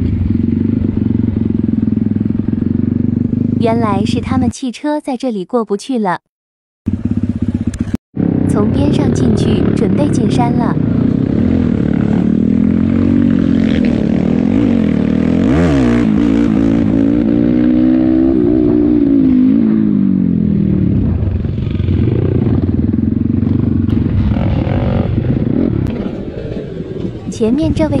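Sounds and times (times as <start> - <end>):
dirt bike engine revving: 6.9 - 27.3.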